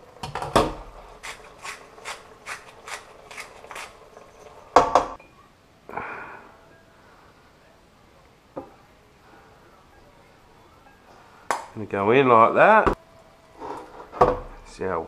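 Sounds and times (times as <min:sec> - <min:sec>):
pepper mill grinding: 0:01.0 - 0:04.4.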